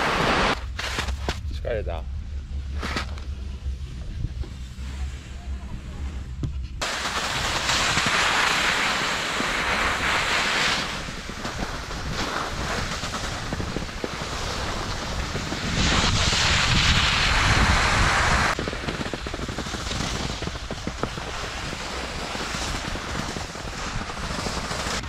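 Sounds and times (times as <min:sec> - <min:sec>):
snowboard sliding over snow: 0:00.0 - 0:01.4, 0:03.8 - 0:25.0
wind buffeting microphone: 0:10.9 - 0:24.7.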